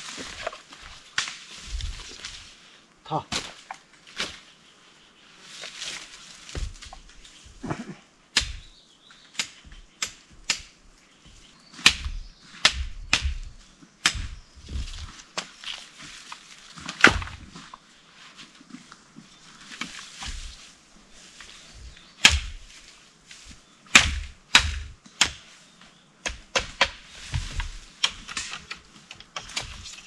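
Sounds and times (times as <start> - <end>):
rustling leaves and stems: 0.0 - 30.0
blade chopping cane: 8.3 - 8.7, 9.3 - 10.8, 11.8 - 15.8, 16.8 - 17.5, 22.2 - 22.7, 23.9 - 25.5, 26.2 - 30.0.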